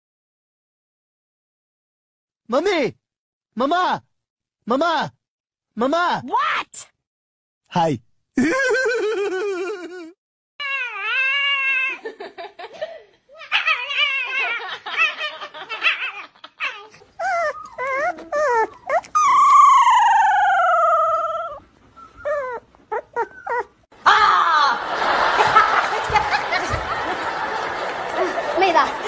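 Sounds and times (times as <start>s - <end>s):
dog howling: 10.6s - 12.0s, 13.4s - 21.6s
dog screaming in high cries: 10.6s - 12.1s, 13.4s - 21.6s.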